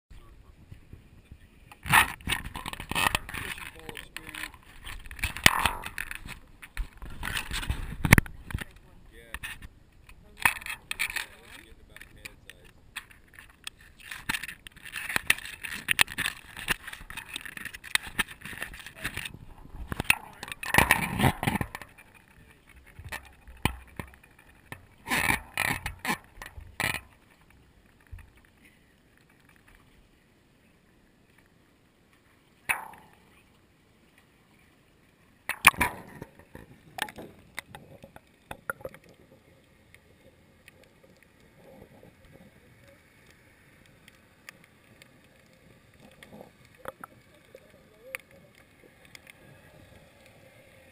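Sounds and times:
faint low water noise: 0.1s - 50.9s
camera handling knocks and rattles: 1.8s - 8.8s, 12.0s - 27.2s.

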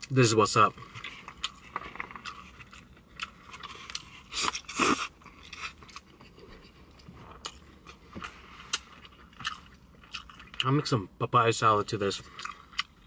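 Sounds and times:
chewing noodles: 0.8s - 10.6s.

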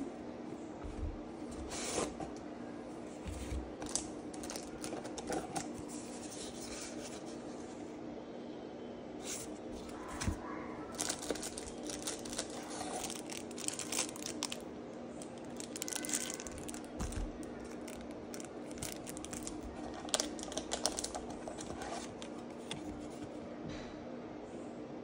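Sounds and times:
plastic wrapping crinkling: 3.7s - 6.0s, 9.8s - 23.2s.

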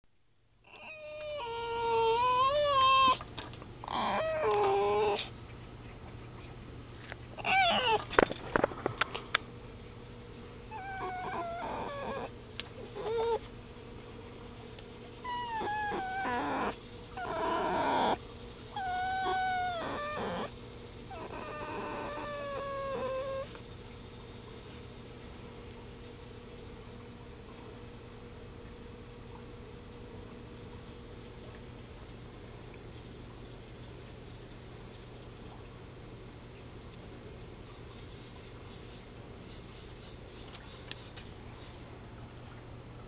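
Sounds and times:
fox whining and whimpering: 0.6s - 3.2s, 3.8s - 5.3s, 7.4s - 8.1s, 10.7s - 13.5s, 15.2s - 23.6s.

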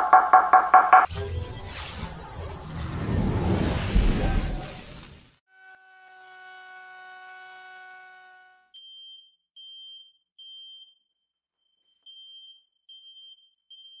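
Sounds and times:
alarm beeping: 0.0s - 3.7s
router whining: 5.5s - 8.6s.

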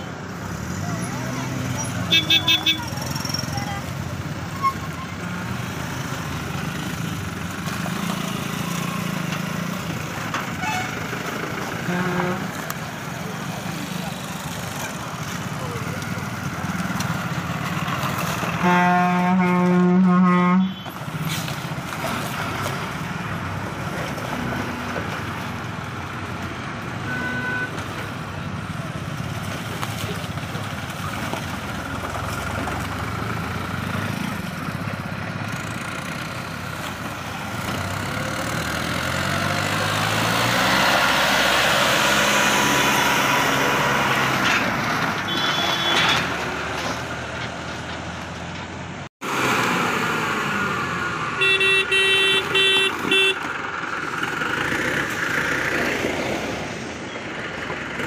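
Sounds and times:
vehicle engines passing: 0.0s - 58.0s
engine revving up: 37.6s - 44.8s
short horn toot: 45.3s - 46.2s.

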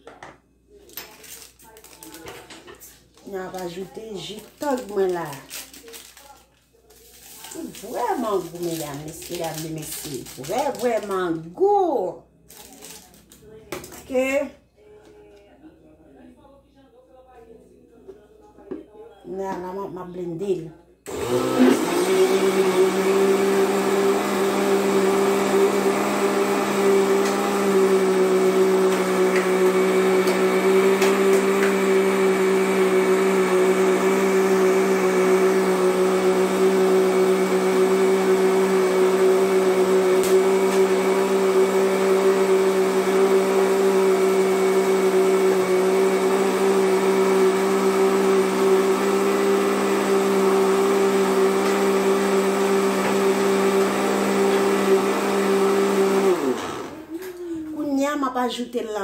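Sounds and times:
electric blender running: 21.1s - 57.2s.

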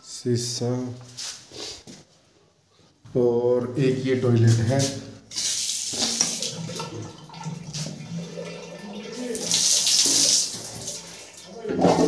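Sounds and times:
tap water splashing on floor: 5.3s - 8.5s, 9.1s - 12.0s.

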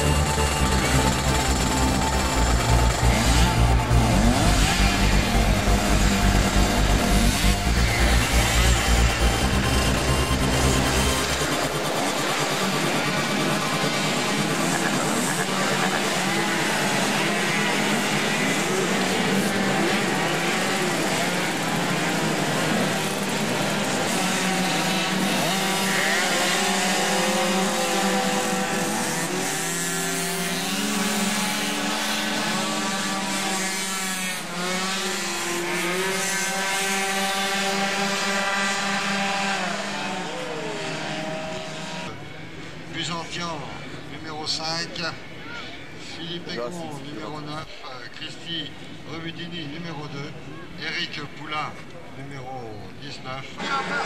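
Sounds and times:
moped engines revving: 0.0s - 44.0s.

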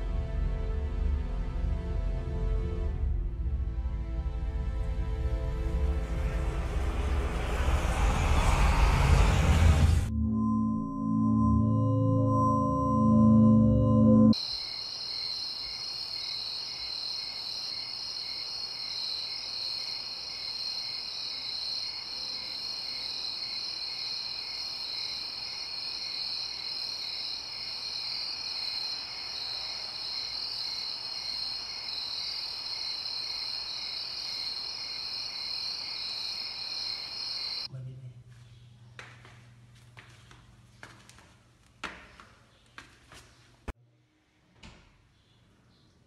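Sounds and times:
pulsing cricket chirp: 11.2s - 37.7s
crickets trilling: 14.4s - 37.7s.

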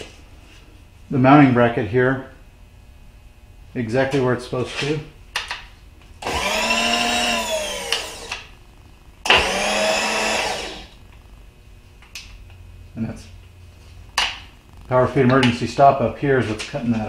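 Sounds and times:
power feed motor whining: 6.2s - 8.5s, 9.2s - 11.1s.

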